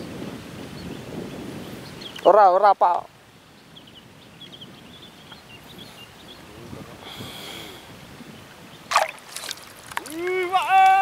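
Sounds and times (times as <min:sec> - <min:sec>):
faint low breathy sounds: 0:06.9 - 0:08.0.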